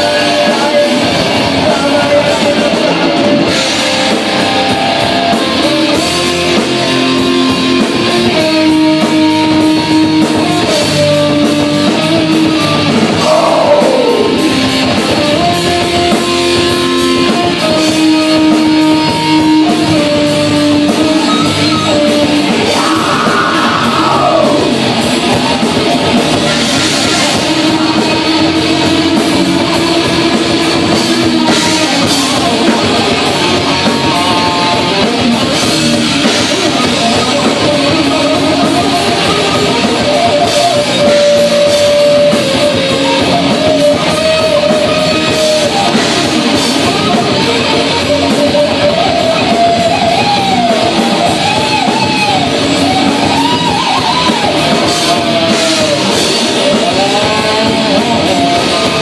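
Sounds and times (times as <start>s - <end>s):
person singing: 0.0s - 3.4s, 13.2s - 14.8s, 21.2s - 25.8s, 53.0s - 59.0s
distorted electric guitars: 0.0s - 59.0s
drum kit with cymbals: 0.0s - 59.0s.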